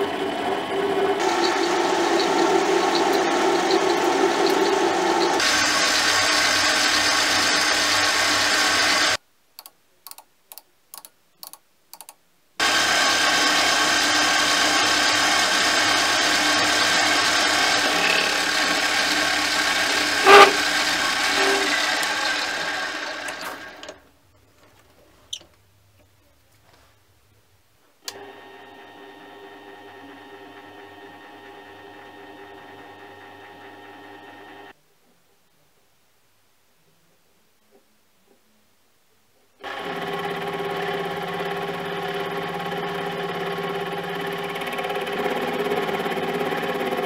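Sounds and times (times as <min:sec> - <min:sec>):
lathe motor whining: 0:00.0 - 0:09.2, 0:12.6 - 0:24.0, 0:28.1 - 0:34.7, 0:39.6 - 0:47.0.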